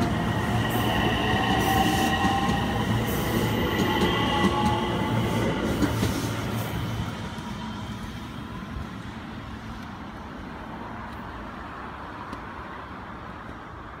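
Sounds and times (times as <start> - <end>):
electric train pulling away: 0.0 - 9.4
surrounding traffic hum: 0.0 - 14.0.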